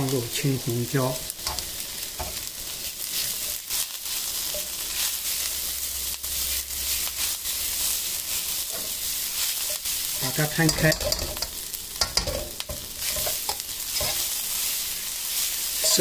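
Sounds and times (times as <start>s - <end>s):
food sizzling in a wok: 0.0s - 16.0s
metal ladle scraping a pan: 8.7s - 14.4s.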